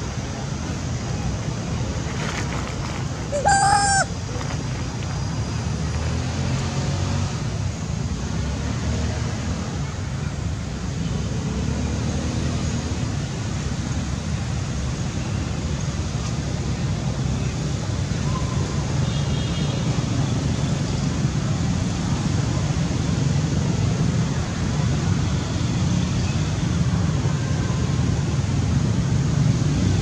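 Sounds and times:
rising animal call: 3.3s - 4.1s.

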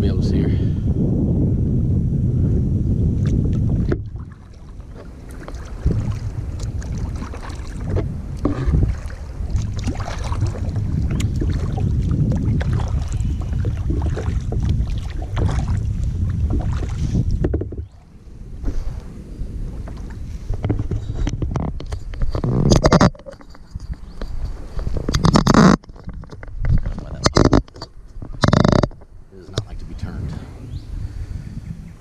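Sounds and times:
wind buffeting microphone: 0.0s - 32.0s
paddle splashing water: 3.2s - 27.0s.

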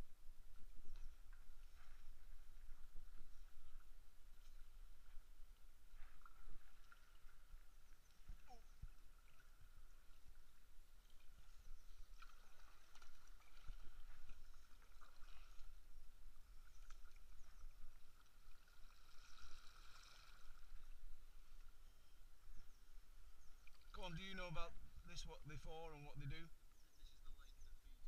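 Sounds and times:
paddle strokes in water: 0.2s - 24.4s
splashes and drips: 11.0s - 15.8s.

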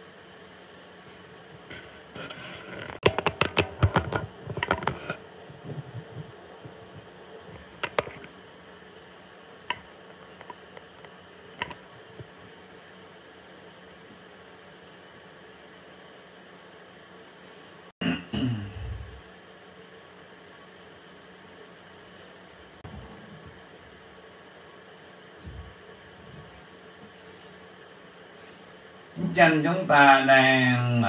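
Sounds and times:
sharp clicks and knocks of handling: 7.8s - 8.3s.

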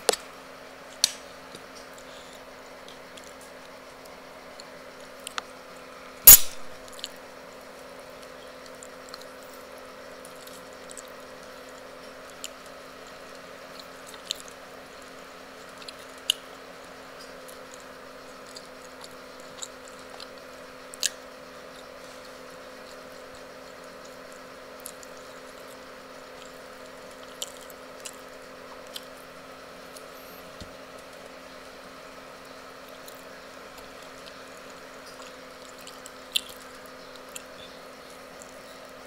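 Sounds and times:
chewing: 1.0s - 5.5s, 8.2s - 9.4s, 10.2s - 30.2s, 32.7s - 39.0s
low hum: 6.3s - 7.0s
small clicks and crackles: 17.2s - 25.8s.

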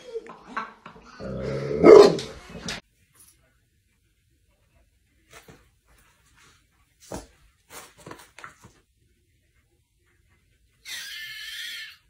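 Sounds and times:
high-pitched animal cry: 10.8s - 12.0s.

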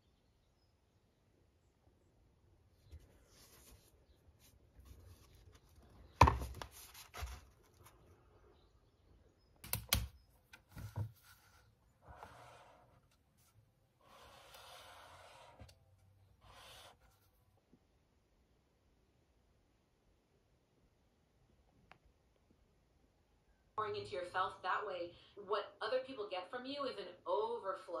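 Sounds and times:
book knocking on wooden desk: 6.2s - 6.6s
highlighter scratching paper: 12.0s - 13.0s, 14.0s - 15.7s, 16.4s - 17.2s.

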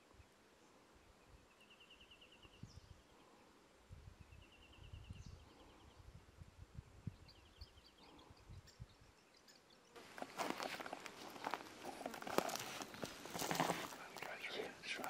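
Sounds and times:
wind rumble on microphone: 2.5s - 3.0s, 3.8s - 9.2s
clothing and gear rustling: 10.0s - 15.0s.

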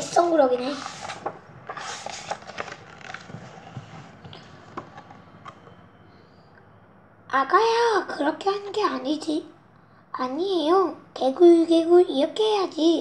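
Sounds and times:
paper rustling: 0.0s - 5.3s
book page turning: 0.0s - 5.6s.

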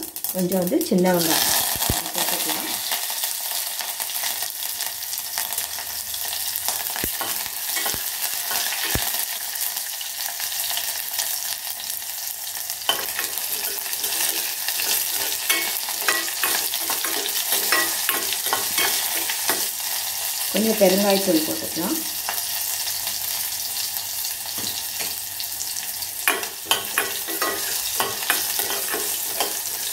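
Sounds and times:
spices sizzling in hot oil: 0.0s - 29.9s
spatula scraping pan: 12.9s - 19.8s, 26.3s - 29.9s.

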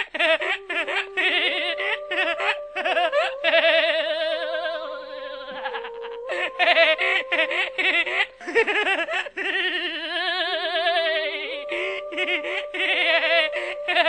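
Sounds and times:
laughter track: 0.0s - 3.9s, 4.6s - 11.2s
steady held tone: 0.2s - 9.0s, 11.4s - 14.0s.

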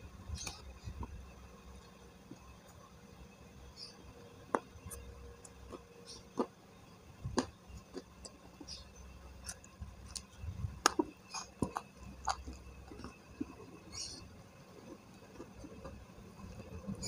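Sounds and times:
person chewing food: 9.4s - 16.8s.

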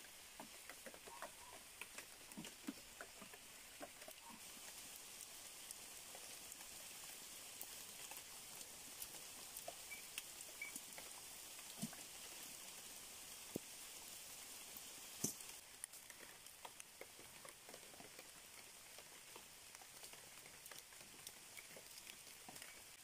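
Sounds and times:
light rain on wet leaves: 0.0s - 23.0s
water drips: 0.0s - 23.0s
steady hiss: 1.6s - 16.8s.

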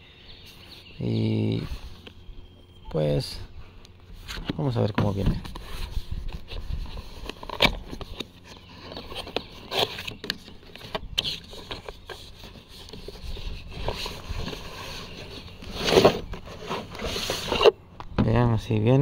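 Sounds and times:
cardboard box rustling: 4.2s - 17.8s.

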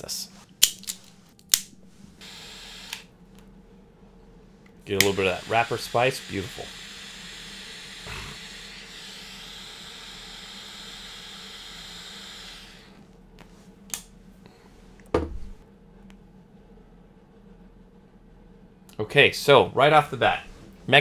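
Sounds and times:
butane torch flame hissing: 4.9s - 13.0s.

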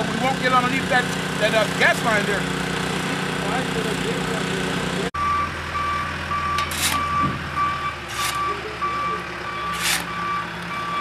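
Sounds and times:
diesel engine running: 0.0s - 11.0s
reversing alarm beeping: 5.2s - 11.0s.

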